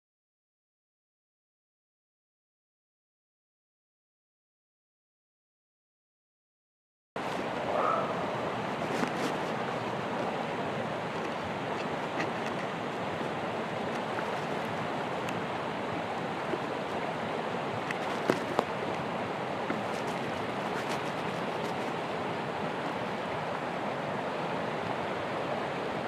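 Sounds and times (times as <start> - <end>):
steady background hiss: 7.2 - 26.0.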